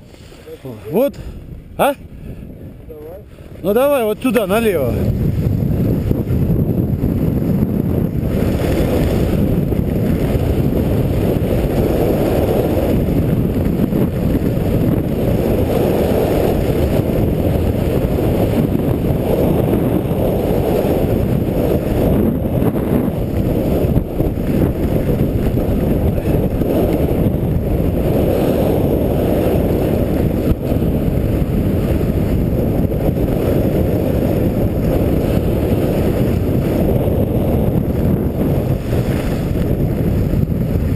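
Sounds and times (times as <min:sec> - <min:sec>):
skis hissing over snow: 0:00.0 - 0:00.9, 0:32.5 - 0:40.2
wind rushing on microphone: 0:00.0 - 0:40.9.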